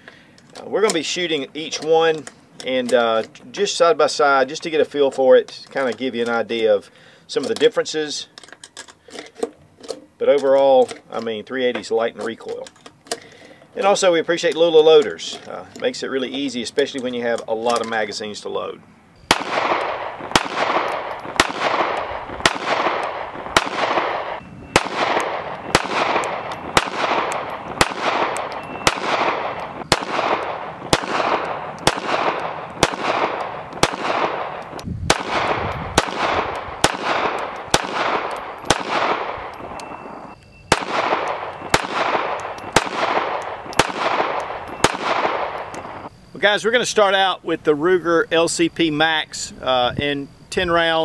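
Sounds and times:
pistol shots with echo: 19.3 - 46.1.

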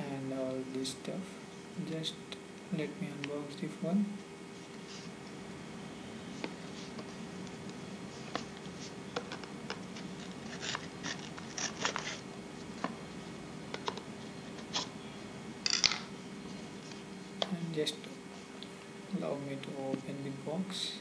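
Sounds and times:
knife scraping cardboard: 10.0 - 12.2.

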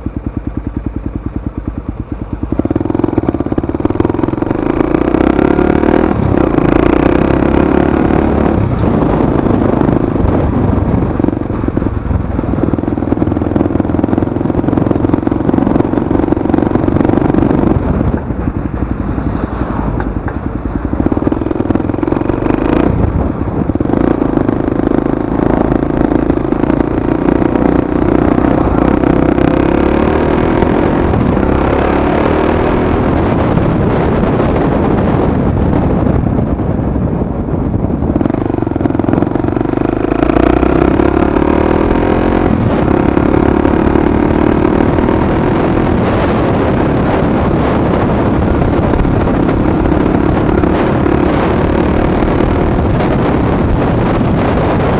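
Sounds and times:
motorcycle engine running: 0.0 - 54.9.

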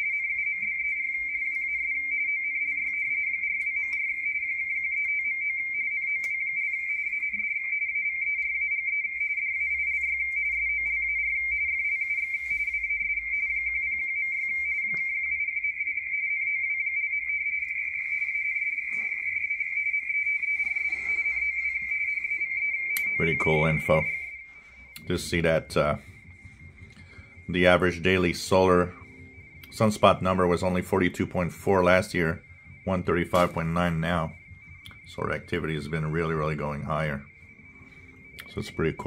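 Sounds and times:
radio teletype warbling tones: 0.0 - 39.0.

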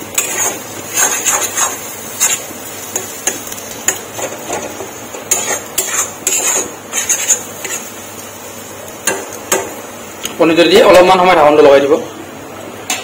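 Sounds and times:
food sizzling: 0.0 - 11.4
metal spatula scraping a pan: 0.2 - 3.4, 5.3 - 7.9.

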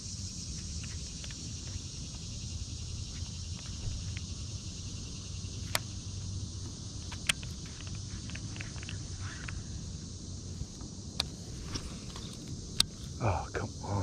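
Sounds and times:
insects droning: 0.0 - 14.0
faint ticks: 0.4 - 10.1
sharp clicks: 5.6 - 6.0, 7.0 - 9.6, 11.1 - 13.0.

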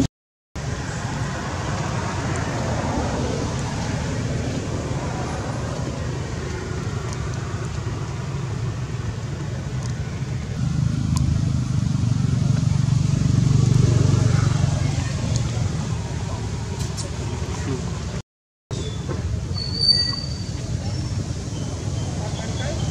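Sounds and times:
low outdoor rumble: 0.6 - 18.2.

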